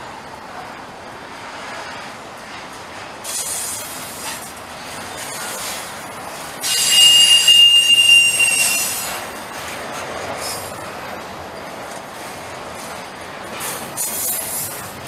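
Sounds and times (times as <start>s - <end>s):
freight train rolling past: 0.0s - 15.0s
high wheel squeal: 6.6s - 9.5s.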